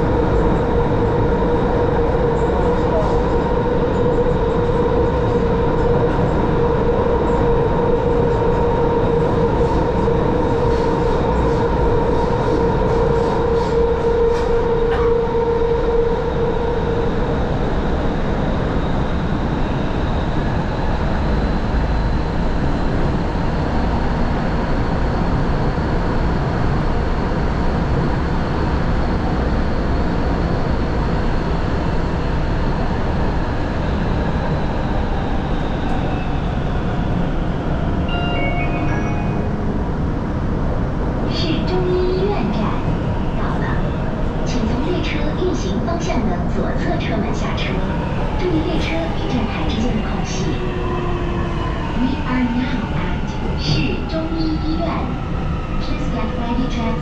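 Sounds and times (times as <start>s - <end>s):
subway train wheels rumbling: 0.0s - 57.0s.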